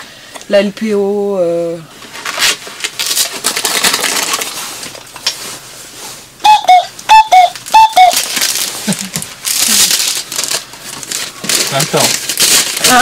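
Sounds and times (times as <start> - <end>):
cuckoo call whistles: 6.4 - 8.3.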